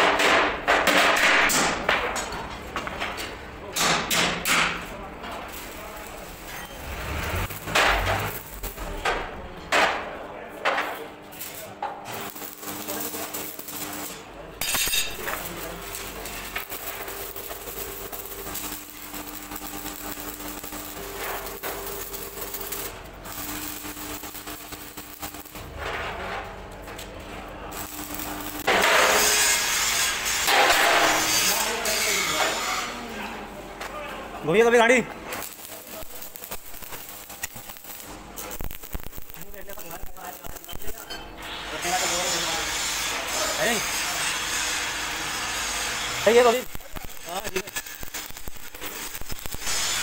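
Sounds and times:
grinding hiss on metal: 5.5 - 9.0, 11.4 - 25.7, 27.6 - 33.0, 35.4 - 50.0.

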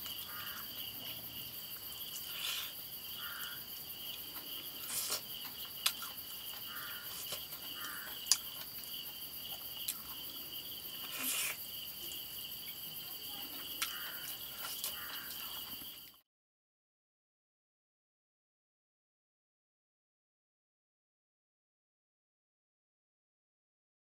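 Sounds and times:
crickets chirring: 0.0 - 16.2.

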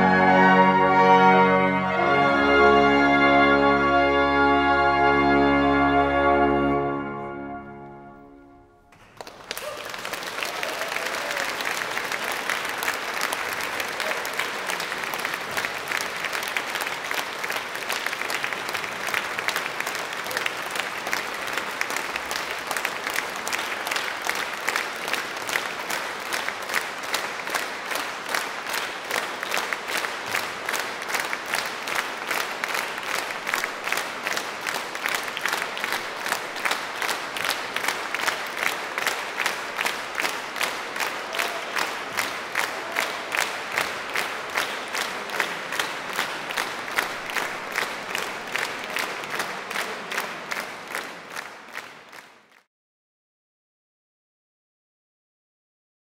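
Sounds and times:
music chord: 0.0 - 8.9
audience applauding: 8.9 - 52.7.

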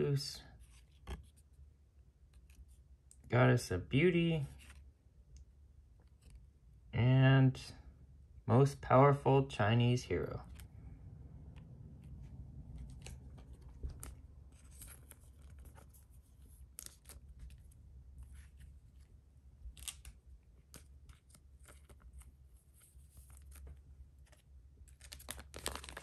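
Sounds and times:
cards and foil pack handled: 12.7 - 19.1, 19.7 - 26.0.

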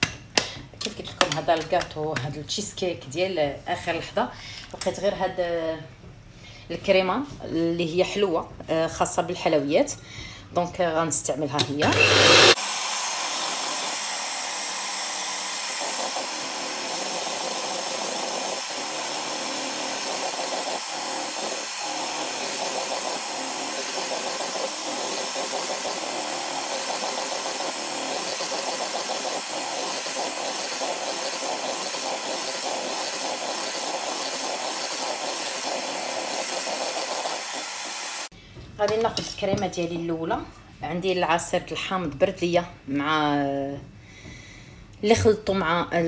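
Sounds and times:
electric hand mixer whipping cream: 11.8 - 38.3.

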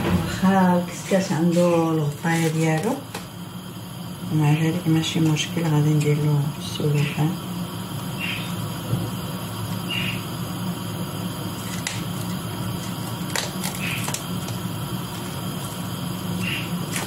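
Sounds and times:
plastic cling film crackling: 11.6 - 15.8.

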